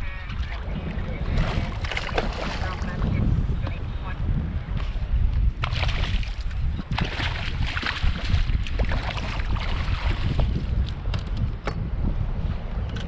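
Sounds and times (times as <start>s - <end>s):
wind rumble on microphone: 0.0s - 13.0s
water splashing: 0.3s - 3.1s, 5.6s - 10.7s.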